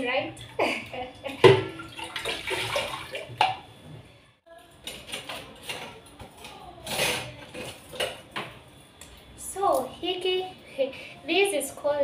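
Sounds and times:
crockery knocking against sink: 1.4 - 1.9.

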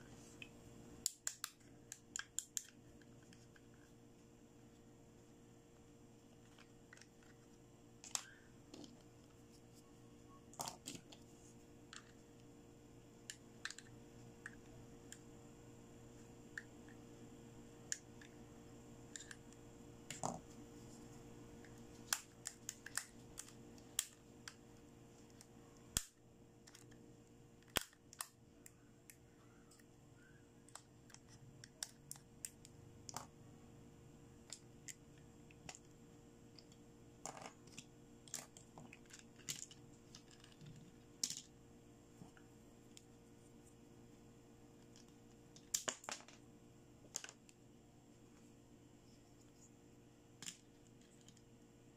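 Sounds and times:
faint steady hum: 0.0 - 51.9.

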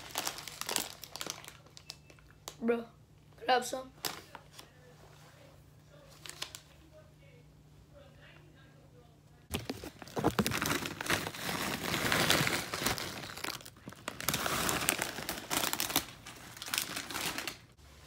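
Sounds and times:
chip bag crinkling: 0.0 - 2.6, 9.5 - 17.8.

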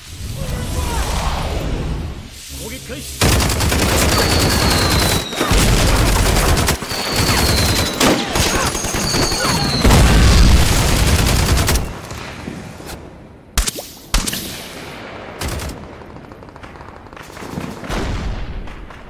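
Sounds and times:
rifle and machine-gun fire: 3.2 - 12.7, 15.1 - 19.0
high falling whistles: 4.0 - 5.8, 6.7 - 10.4.

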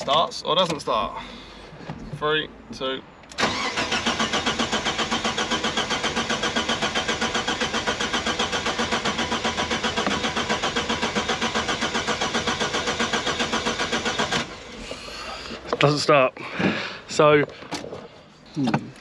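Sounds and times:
car engine cranking on starter: 3.3 - 15.7.

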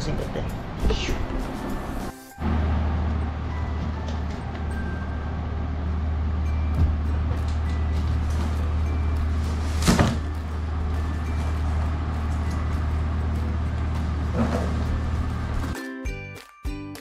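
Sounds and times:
cardboard flaps rustling: 9.4 - 10.3.

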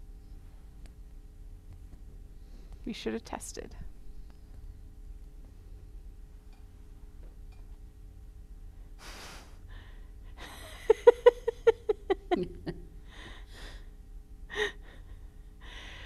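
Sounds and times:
person laughing: 10.4 - 13.0.

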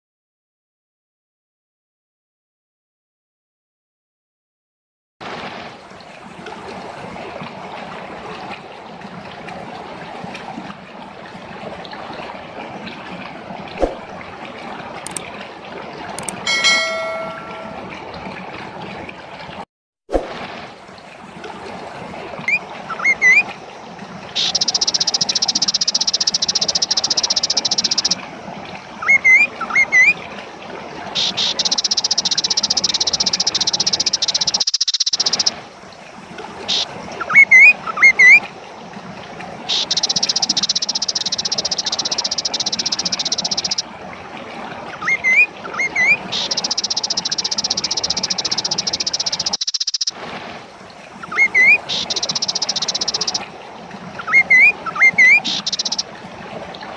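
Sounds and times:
bird whistling and trilling: 31.5 - 35.5, 39.7 - 43.8, 45.0 - 50.1, 51.3 - 53.4, 54.2 - 56.0.

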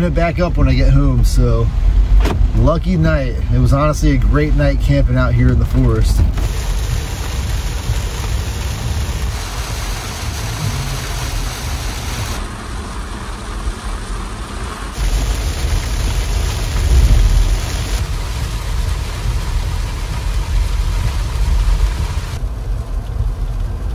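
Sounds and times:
rain hiss: 0.0 - 23.9
vehicle engine rumbling: 0.0 - 23.9.

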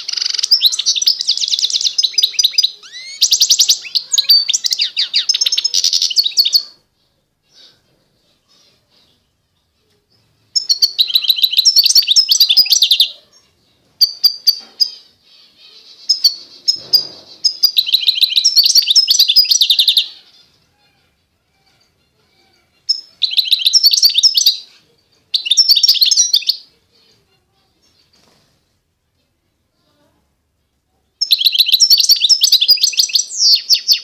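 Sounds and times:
finch singing: 0.0 - 6.8, 10.2 - 26.7, 31.2 - 34.0.

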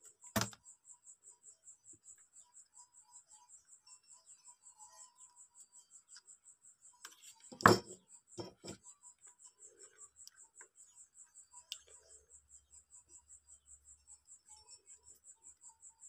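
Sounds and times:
knocks on workbench: 7.5 - 8.8.

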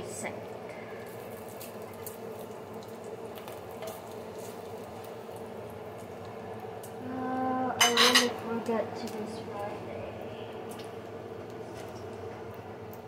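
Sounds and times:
bacon sizzling in a frying pan: 0.0 - 9.9.

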